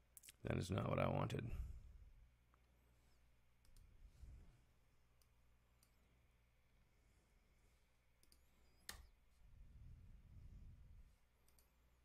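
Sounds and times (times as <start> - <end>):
computer mouse clicks: 8.2 - 9.2, 11.4 - 11.8.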